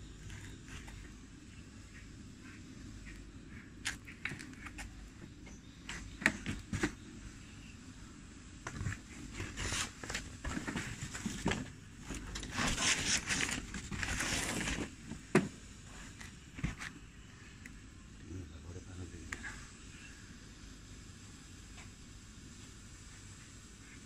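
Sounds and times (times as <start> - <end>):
smoke firework hissing: 12.3 - 24.0.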